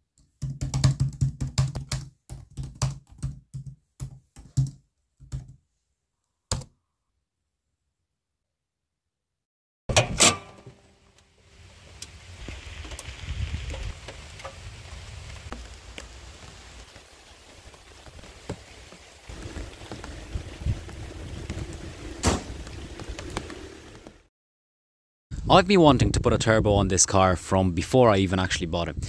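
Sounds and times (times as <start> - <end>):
steady rain: 11.0 - 24.3
loud sharp knocks: 22.2 - 22.8.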